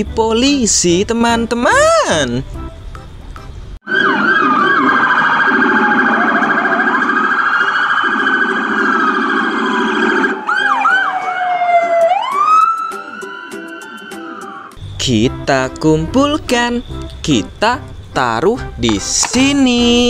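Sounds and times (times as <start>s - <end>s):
police sirens wailing: 3.8s - 15.5s.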